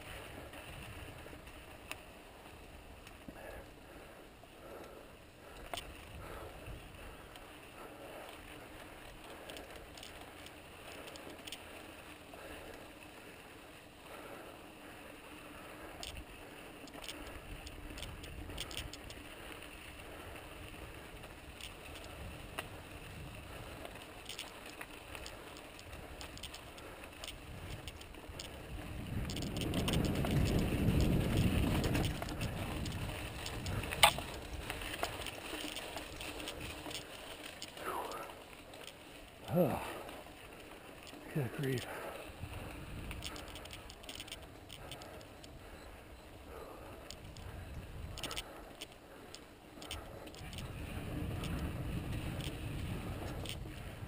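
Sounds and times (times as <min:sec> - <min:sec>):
bike tyres on dirt: 0:00.0 - 0:54.0
small clicks and rattles: 0:04.7 - 0:54.0.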